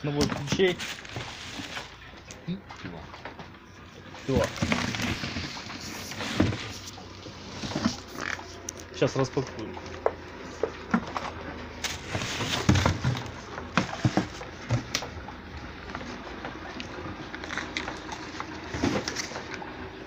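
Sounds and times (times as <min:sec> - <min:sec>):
cardboard box rustling: 0:00.2 - 0:02.1, 0:04.0 - 0:08.7, 0:10.4 - 0:15.2, 0:17.2 - 0:19.5
plastic wrapping crinkling: 0:00.4 - 0:02.1, 0:04.2 - 0:08.8.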